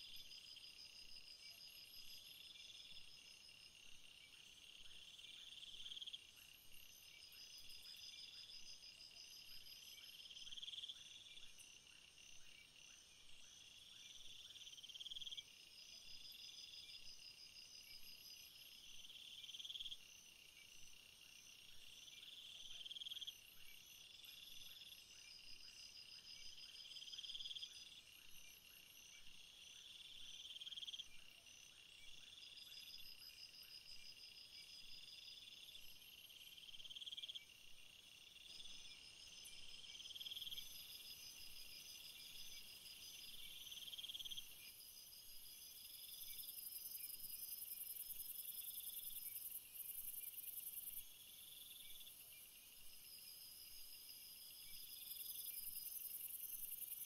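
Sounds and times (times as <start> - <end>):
insect trill: 0.0 - 57.0
crickets chirring: 32.3 - 57.0.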